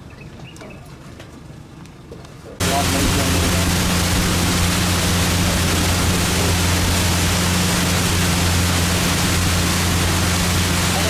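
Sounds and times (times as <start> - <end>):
engine humming: 2.6 - 11.0
loud rushing noise: 2.6 - 11.0.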